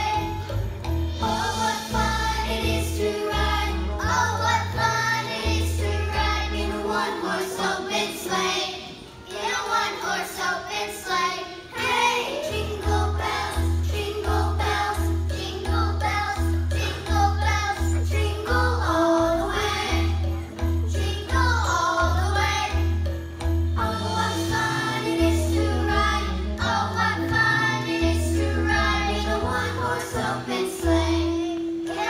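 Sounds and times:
children's choir singing: 0.0s - 0.6s, 1.2s - 23.0s, 23.8s - 32.0s
instrumental accompaniment: 12.0s - 32.0s.

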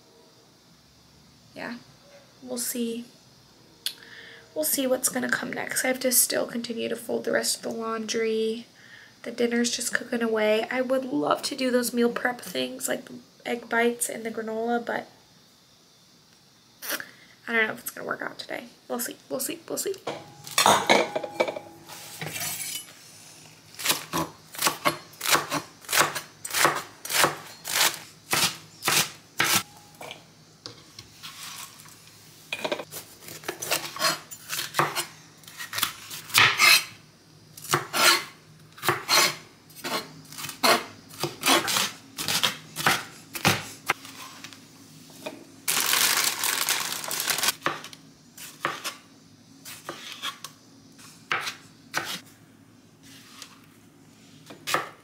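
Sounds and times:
ceramic bowls clinking: 20.1s - 22.9s
knife chopping on cutting board: 37.7s - 43.6s.

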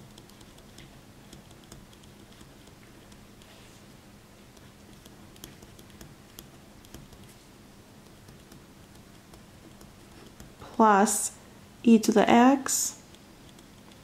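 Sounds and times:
ballpoint pen scratching on paper: 0.0s - 3.6s, 4.6s - 7.4s, 8.0s - 10.6s
pen tip tapping paper: 0.1s - 3.2s, 4.6s - 7.3s, 8.0s - 10.6s.

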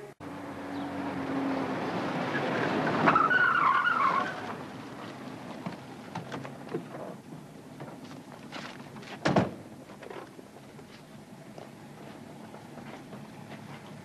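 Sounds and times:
tyres squealing: 2.3s - 4.6s.

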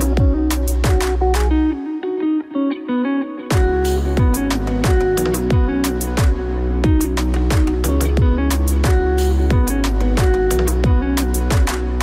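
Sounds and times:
kick drum beat: 0.0s - 1.5s, 3.5s - 12.0s
electronic music: 0.0s - 12.0s.

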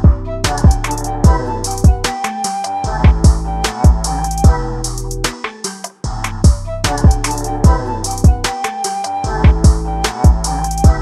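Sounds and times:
deep kick drums: 0.0s - 2.1s, 2.9s - 4.7s, 6.1s - 8.5s, 9.4s - 11.0s
held synth notes: 6.1s - 11.0s.

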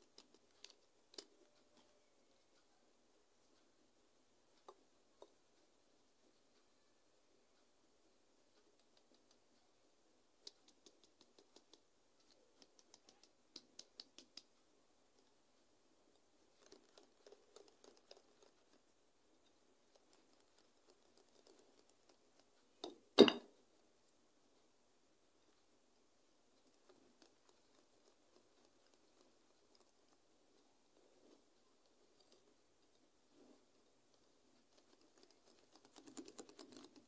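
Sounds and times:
loud thump: 23.2s - 23.5s.

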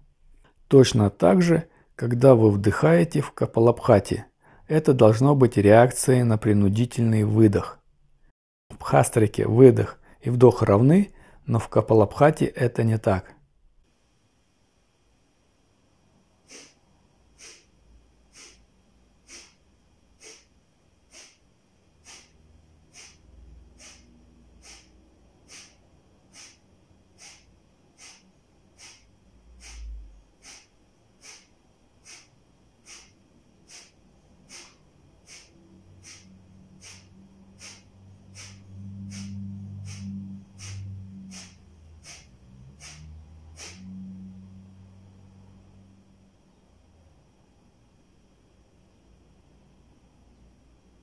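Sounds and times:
low hum: 13.5s - 51.0s
man exhaling forcefully through nose: 16.4s - 44.1s.

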